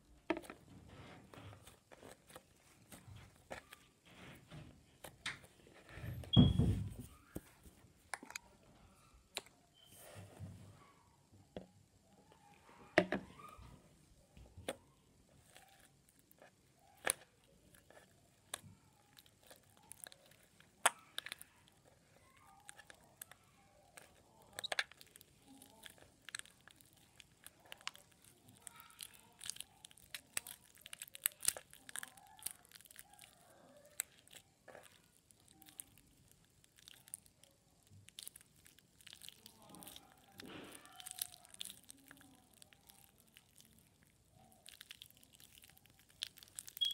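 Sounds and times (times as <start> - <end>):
slime squeezed clicking and popping: 22.2 - 46.9.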